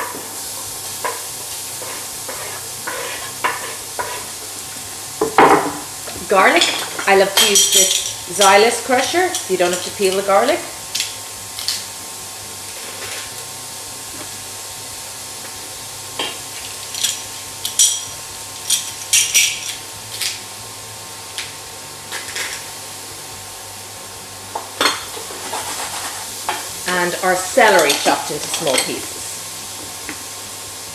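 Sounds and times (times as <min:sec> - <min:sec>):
onions sizzling in pot: 0:00.0 - 0:30.9
wooden spoon scraping steel pot: 0:01.8 - 0:04.3, 0:25.4 - 0:26.3.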